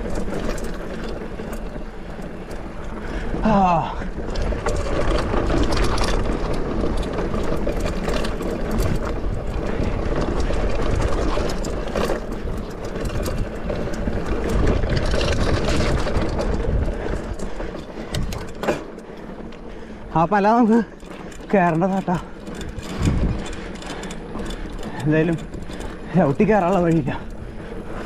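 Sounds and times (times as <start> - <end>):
bike rattles and knocks: 0.0 - 28.0
bike tyres crunching on ground: 0.0 - 28.0
wind on microphone: 22.6 - 23.7.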